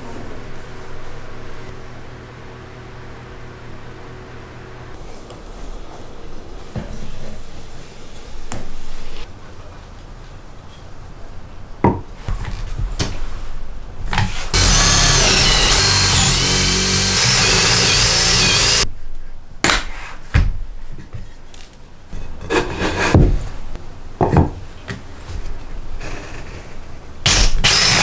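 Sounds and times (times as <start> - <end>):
cordless drill motor whining: 14.6 - 18.8, 27.3 - 28.0.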